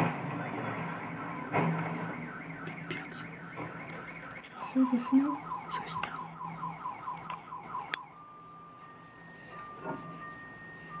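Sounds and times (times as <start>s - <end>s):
car alarm chirping rapidly: 0.4s - 8.6s.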